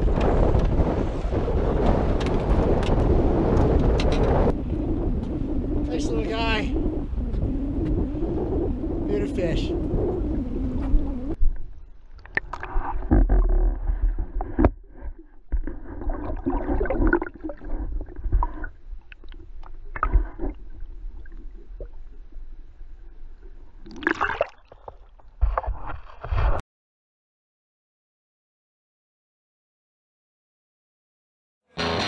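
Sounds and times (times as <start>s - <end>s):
low rumble: 0.0s - 23.8s
water gurgling and sloshing: 0.0s - 26.6s.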